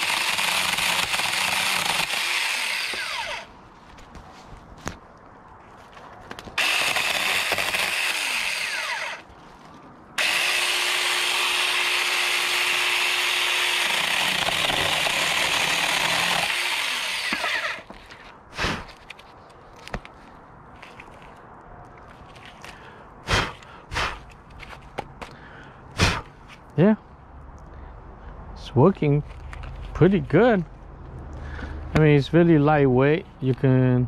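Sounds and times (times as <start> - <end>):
mini chainsaw cutting branch: 0.0 - 3.5, 6.6 - 9.3, 10.2 - 17.9.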